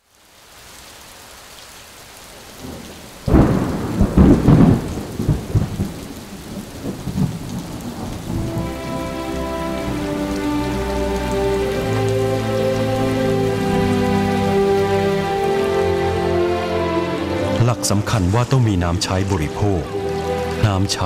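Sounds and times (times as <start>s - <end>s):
steady rain: 0.0s - 21.0s
thunderclap rumbling: 2.6s - 10.1s
soft music with held notes: 8.3s - 21.0s.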